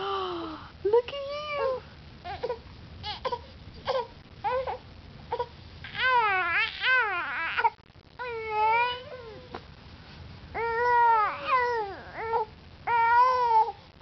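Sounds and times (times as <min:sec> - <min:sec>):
infant crying: 0:02.2 - 0:09.5, 0:10.6 - 0:13.8.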